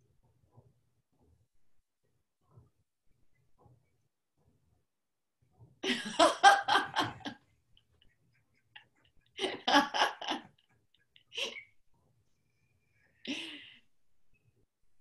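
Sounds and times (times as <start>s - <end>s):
people laughing: 5.8s - 7.4s, 8.6s - 11.7s.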